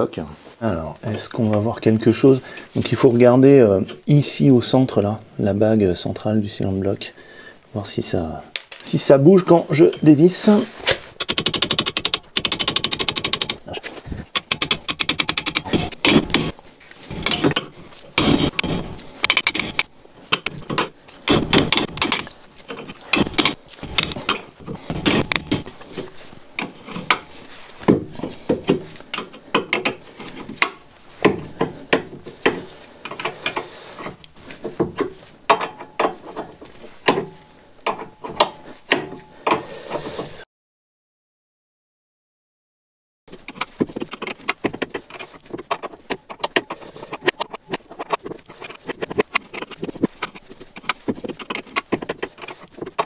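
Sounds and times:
wrench ticking on a nut: 0:11.2 - 0:13.6, 0:14.4 - 0:16.5, 0:18.6 - 0:20.6
metal wrench clicks and clinks: 0:14.4 - 0:16.5, 0:18.6 - 0:19.9.

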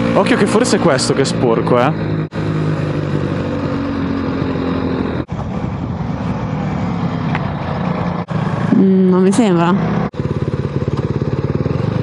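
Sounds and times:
motorcycle engine running: 0:00.0 - 0:12.0
wind rushing over microphone: 0:00.8 - 0:08.8.

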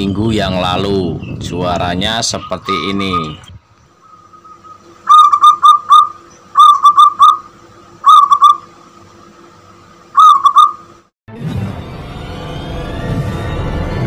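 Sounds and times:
dove cooing: 0:04.0 - 0:08.7, 0:10.2 - 0:10.8
music: 0:11.3 - 0:14.0.

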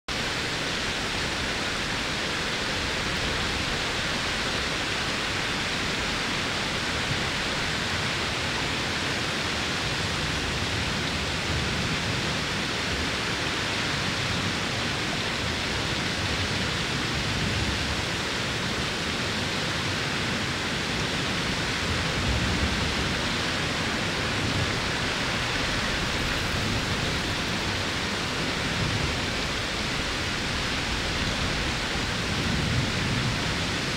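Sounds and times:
waterfall rushing: 0:00.1 - 0:33.9.

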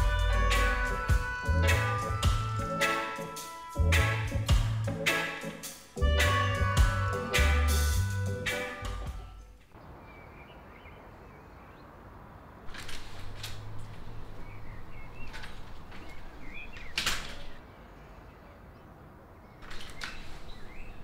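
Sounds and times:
birds chirping: 0:00.0 - 0:21.0
door clicking open: 0:12.7 - 0:14.4, 0:15.2 - 0:17.6
door banging shut: 0:16.8 - 0:17.6.

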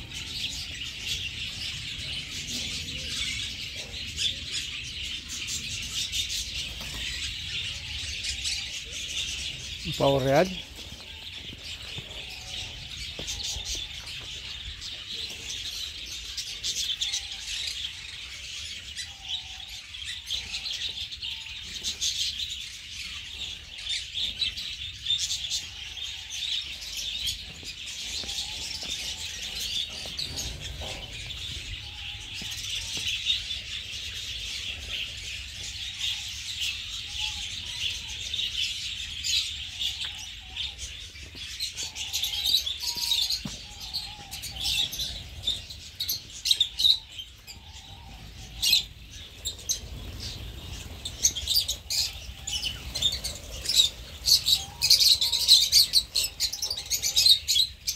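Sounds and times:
small birds chirping: 0:00.0 - 0:57.9
faint lower bird calls: 0:28.0 - 0:57.9.

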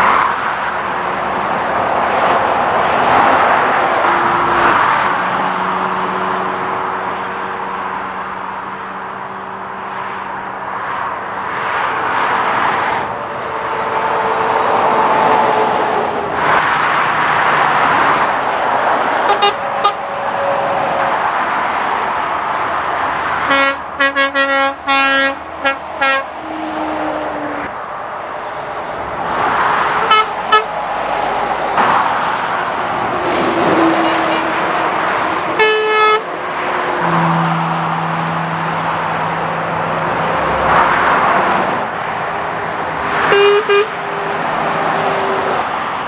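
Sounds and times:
traffic passing at speed: 0:00.0 - 0:46.0
lorry horn toots: 0:04.0 - 0:05.0, 0:19.3 - 0:20.0, 0:23.4 - 0:27.7, 0:30.1 - 0:30.8, 0:33.4 - 0:36.3, 0:43.2 - 0:44.5.

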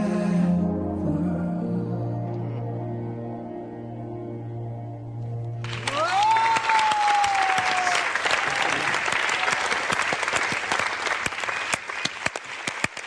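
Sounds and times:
audience applauding: 0:05.6 - 0:13.0
cheering cry: 0:05.8 - 0:10.0.

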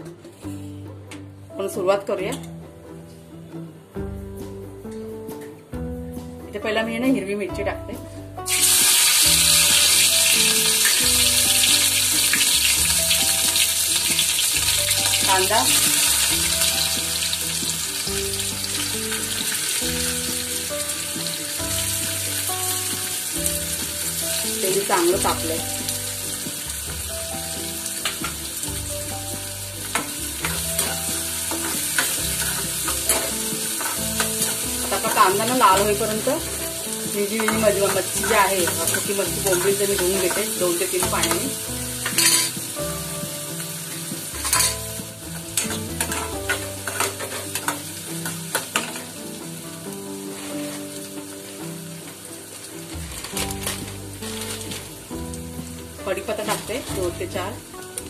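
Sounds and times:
onions sizzling in hot oil: 0:08.4 - 0:58.0
metal ladle clinking on pan: 0:37.4 - 0:42.5, 0:44.4 - 0:44.8
spoon clinking against pan: 0:41.1 - 0:42.6, 0:44.4 - 0:44.8.

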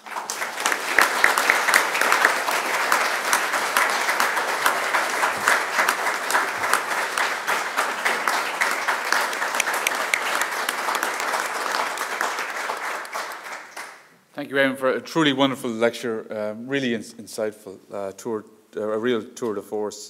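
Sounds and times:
audience applause: 0:00.0 - 0:14.1.

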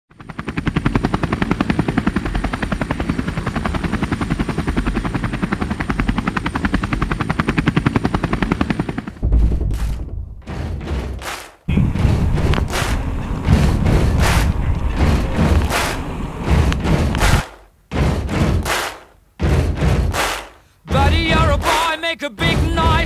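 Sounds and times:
helicopter-like chopping pulses: 0:00.1 - 0:23.0
deep boom: 0:09.2 - 0:17.4
whooshing sweeps: 0:11.7 - 0:17.5.

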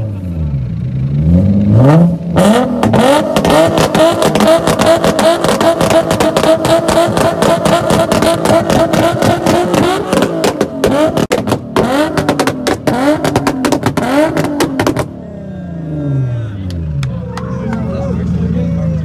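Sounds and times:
car engine revving: 0:00.0 - 0:19.0
exhaust pops and bangs: 0:02.8 - 0:15.1.

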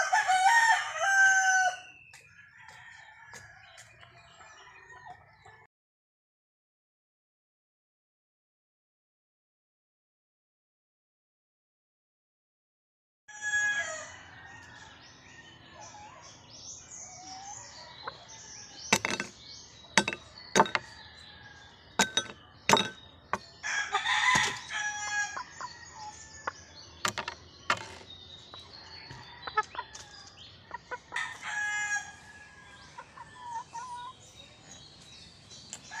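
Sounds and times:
rooster crowing: 0:00.0 - 0:03.7, 0:13.3 - 0:15.0, 0:23.6 - 0:26.4
chickens clucking: 0:17.1 - 0:21.2, 0:22.0 - 0:35.0.

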